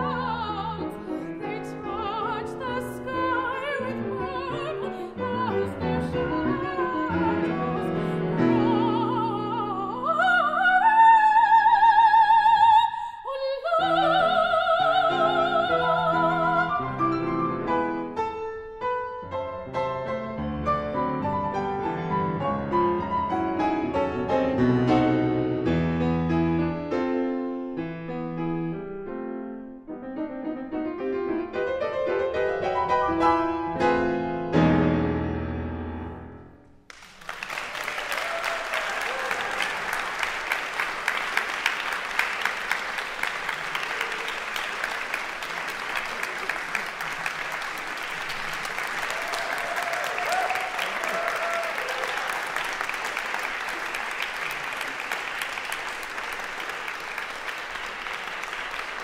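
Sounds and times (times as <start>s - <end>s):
grand piano playing: 0.0s - 11.0s, 13.8s - 36.8s
audience applauding: 36.9s - 59.0s.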